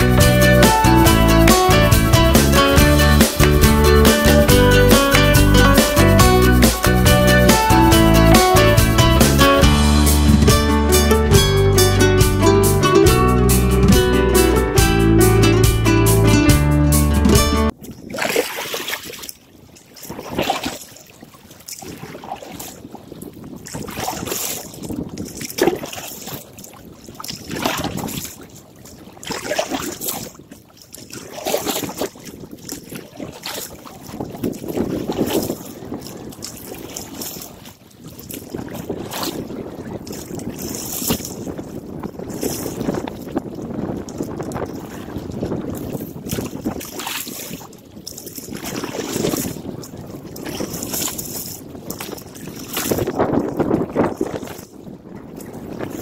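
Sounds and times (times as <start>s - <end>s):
water splashing against canoe: 0.0s - 14.9s, 16.5s - 56.0s
wind buffeting microphone: 17.7s - 56.0s.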